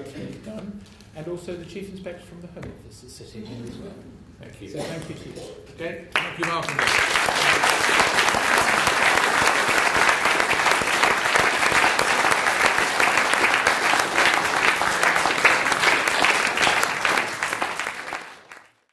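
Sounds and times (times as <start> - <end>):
audience applauding: 6.1 - 18.9.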